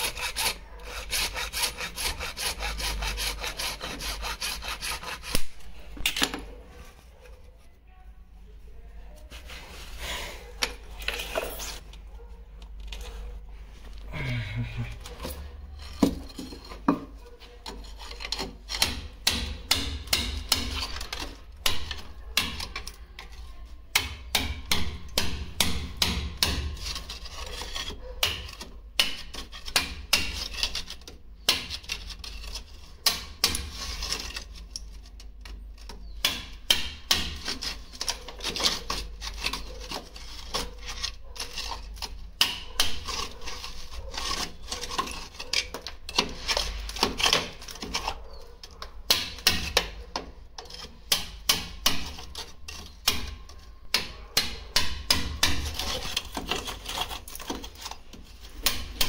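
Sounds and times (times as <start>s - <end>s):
scraping and rasping: 0.0s - 7.8s, 9.1s - 59.0s
hand tools knocking and tapping: 16.0s - 17.2s.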